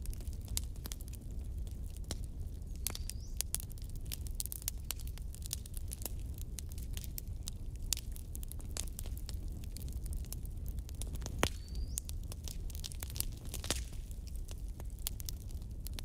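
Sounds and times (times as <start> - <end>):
bonfire crackling and popping: 0.0 - 16.0
low rumble of flames: 0.0 - 16.0.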